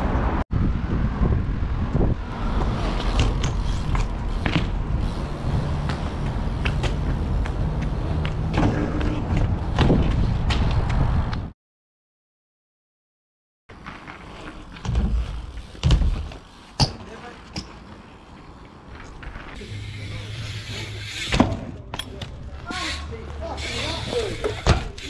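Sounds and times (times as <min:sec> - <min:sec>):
bike rolling over paving: 0:02.3 - 0:10.8, 0:13.7 - 0:25.0
bike knocks and clicks: 0:02.6 - 0:11.5, 0:13.9 - 0:18.0, 0:21.0 - 0:22.8, 0:24.1 - 0:25.0.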